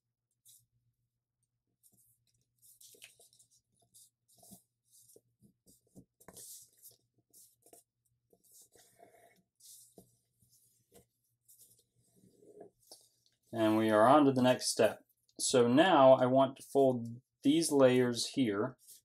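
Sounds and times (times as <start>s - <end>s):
paper rustling and crinkling: 1.8s - 9.0s.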